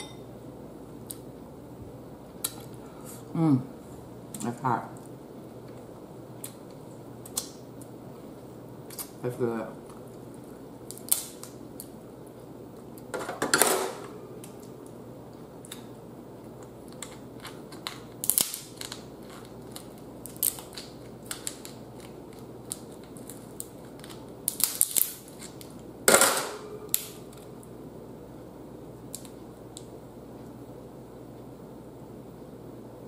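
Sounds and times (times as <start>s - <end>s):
crab shells cracking: 10.9s - 11.9s, 16.9s - 25.8s.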